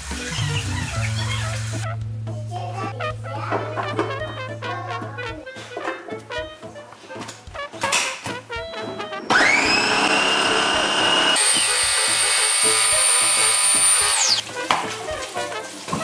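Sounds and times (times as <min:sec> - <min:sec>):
food processor motor whining: 0:09.3 - 0:14.4.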